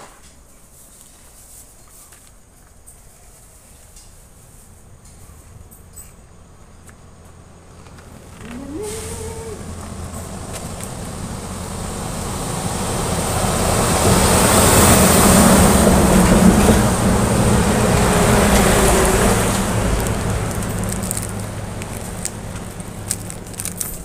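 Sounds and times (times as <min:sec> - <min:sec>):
vehicle passing on road: 0:05.1 - 0:24.0.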